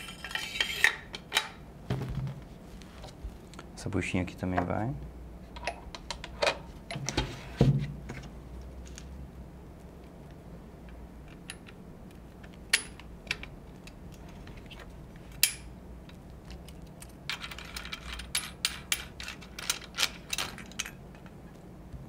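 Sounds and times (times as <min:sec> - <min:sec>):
metal clinks and rattles: 0:16.6 - 0:21.3.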